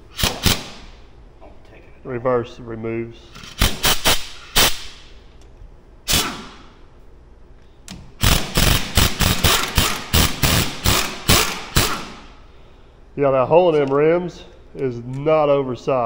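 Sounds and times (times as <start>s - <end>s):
pneumatic impact wrench bursts: 0.1s - 0.9s, 3.4s - 5.0s, 6.1s - 6.8s, 8.2s - 12.4s.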